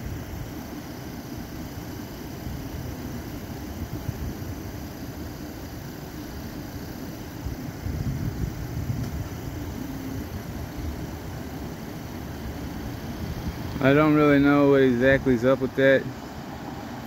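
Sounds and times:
engine idling: 0.0 - 17.0.

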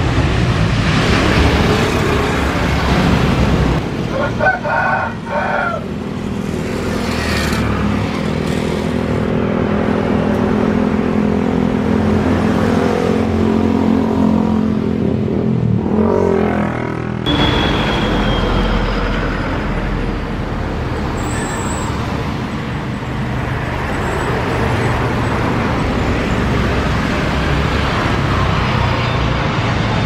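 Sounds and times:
rooster crowing: 4.1 - 5.9
jet airliner engines rumbling: 17.2 - 30.0.

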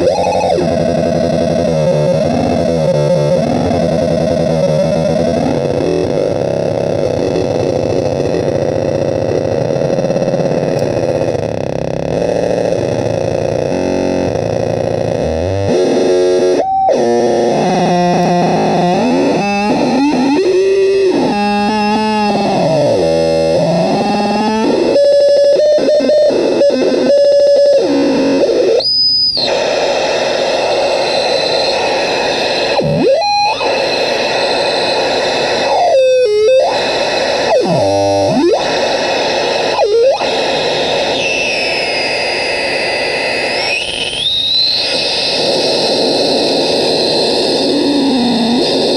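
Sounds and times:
noise synth with wobbling tones: 0.0 - 48.9
high whistle sliding: 40.9 - 45.3.

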